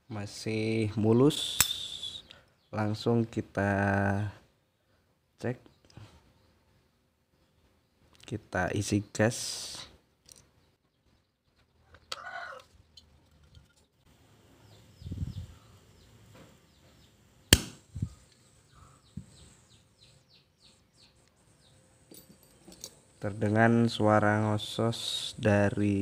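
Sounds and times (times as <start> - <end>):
sharp click: 1.5 - 2.0, 17.5 - 17.8.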